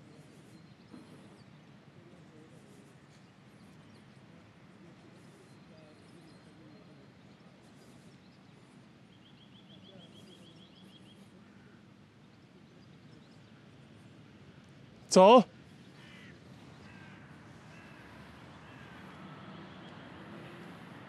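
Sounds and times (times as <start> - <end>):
small birds chirping: 0.0 - 15.0
low steady background hum: 0.0 - 21.0.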